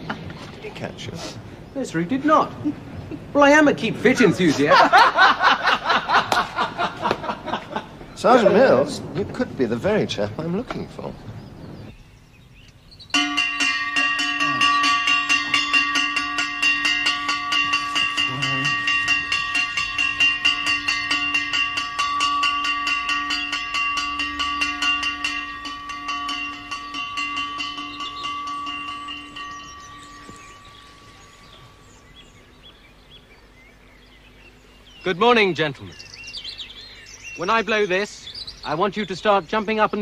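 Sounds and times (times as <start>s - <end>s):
bell struck rapidly: 13.2s - 32.3s.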